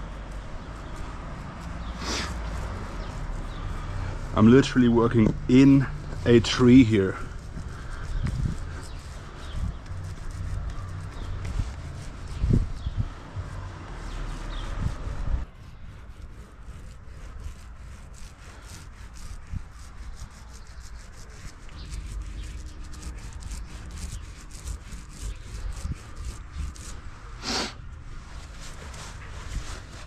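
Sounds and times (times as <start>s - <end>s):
paint roller rubbing on metal: 0.0s - 30.0s
brief loud hiss: 27.4s - 27.8s.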